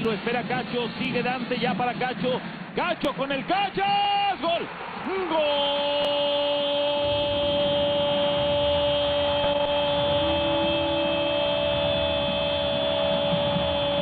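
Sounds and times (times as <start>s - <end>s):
stadium crowd noise: 0.0s - 14.0s
commentator's drawn-out goal cry: 3.5s - 14.0s.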